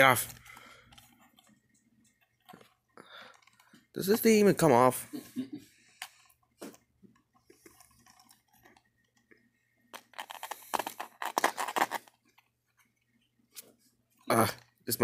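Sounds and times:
scraping and crinkling clicks: 6.0 - 13.8.

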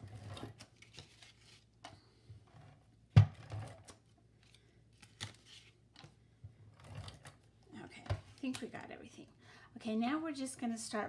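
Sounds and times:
paper rustling: 0.3 - 1.7.

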